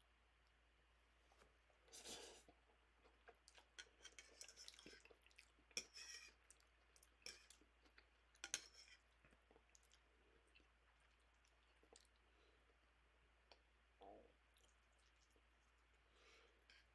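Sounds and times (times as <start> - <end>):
chewing and slurping noodles: 2.4 - 8.1.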